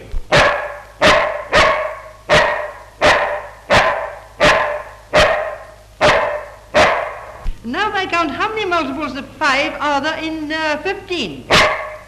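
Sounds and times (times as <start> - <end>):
dog barking: 0.3 - 7.3, 11.5 - 12.0.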